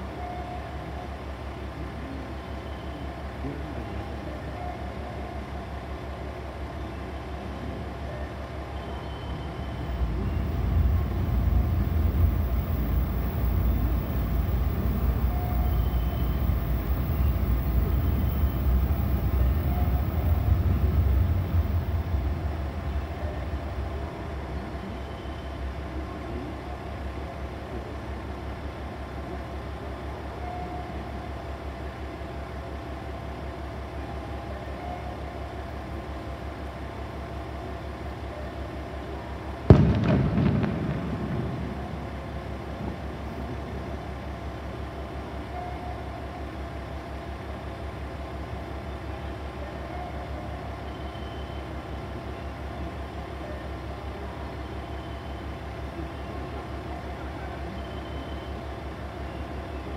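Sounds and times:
diesel engine idling: 9.0 - 29.8
sudden loud burst: 9.8 - 24.9, 39.7 - 42.2.

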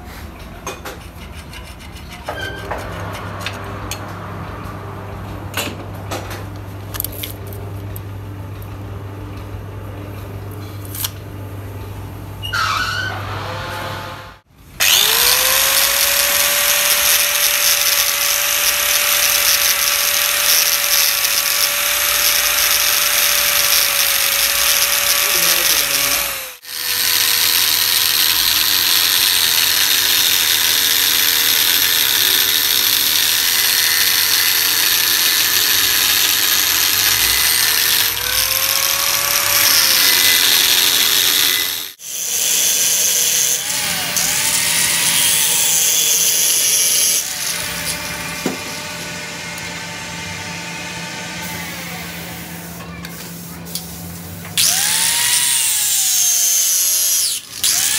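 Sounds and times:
power tool motor whining on metal: 12.5 - 52.8, 54.6 - 57.9.

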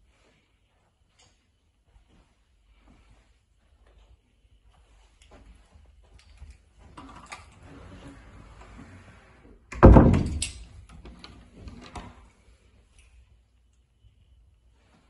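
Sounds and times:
soft rustle: 0.0 - 9.6, 11.5 - 15.0
loud thump against door: 9.8 - 10.4.

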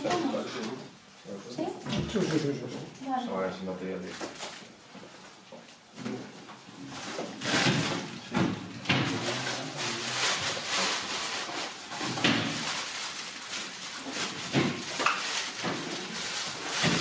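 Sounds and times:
rustling and knocking handling noises: 4.1 - 9.6, 10.2 - 17.0.

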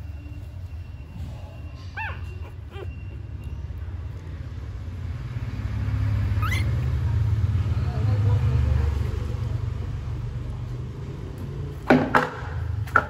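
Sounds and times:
puppies squeaking: 0.0 - 5.0, 6.0 - 7.4.

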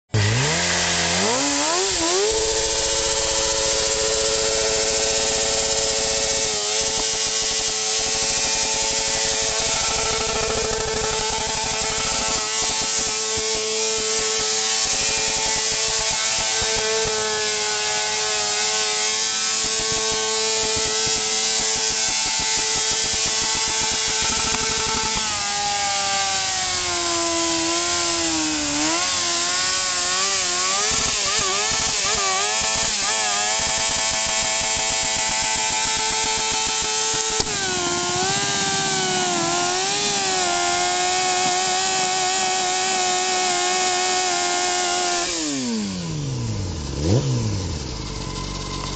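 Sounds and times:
motorcycle engine revving: 0.1 - 48.9
spinning tyre hiss: 0.6 - 18.7, 33.6 - 44.4.

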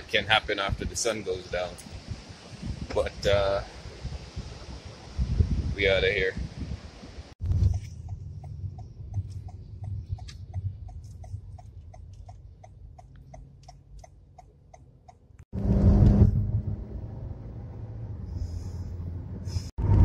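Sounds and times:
car engine and tyres rumbling: 0.0 - 20.0
turn signal ticking: 7.4 - 15.5
car idling hum: 7.4 - 19.7.

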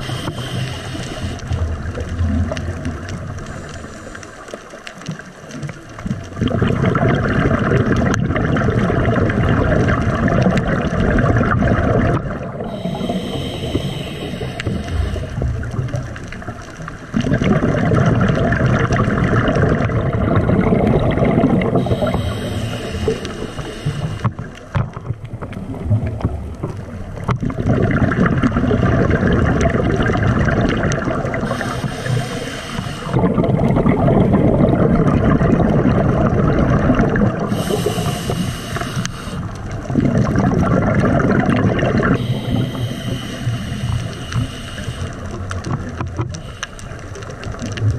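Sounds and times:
diver breathing through regulator: 0.0 - 1.6, 3.4 - 4.8, 12.6 - 16.2, 21.6 - 24.5, 31.3 - 33.6, 37.2 - 39.6, 41.9 - 45.6, 46.2 - 47.4
exhaled air bubbling underwater: 0.0 - 47.9.

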